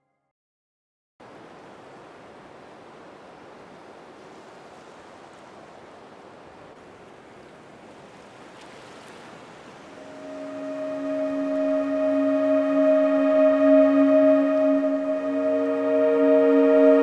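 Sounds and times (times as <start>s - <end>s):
background music: 10.0s - 17.0s
sustained low tone: 10.0s - 17.0s.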